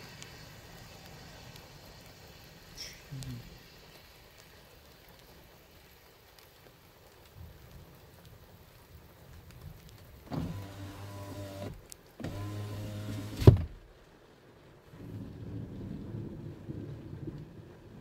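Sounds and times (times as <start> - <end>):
power window motor whine: 10.3 - 13.7.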